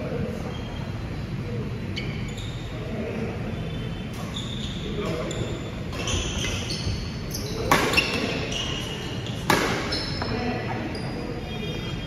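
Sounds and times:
shoes squeaking on court floor: 1.9s - 2.8s, 4.1s - 11.4s
racket striking shuttlecock: 7.7s - 8.4s, 9.4s - 9.9s.

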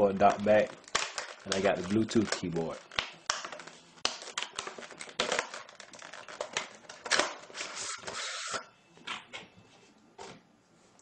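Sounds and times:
plastic packaging clicking and crackling: 0.0s - 7.7s.

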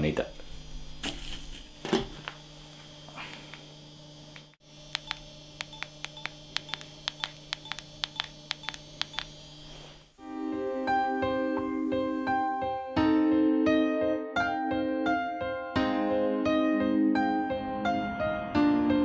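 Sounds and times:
phone keypad beeps: 5.0s - 9.3s
piano music: 10.2s - 19.0s.

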